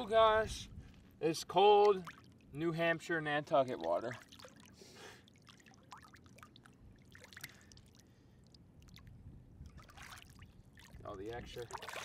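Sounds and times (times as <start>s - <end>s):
seawater splashing and trickling: 1.4s - 12.0s.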